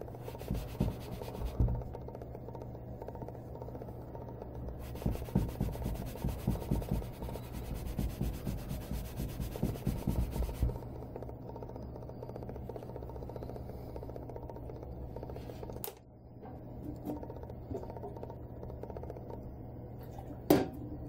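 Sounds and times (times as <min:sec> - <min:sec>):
cloth rubbing on plastic: 0:00.1 - 0:01.8, 0:04.8 - 0:10.8.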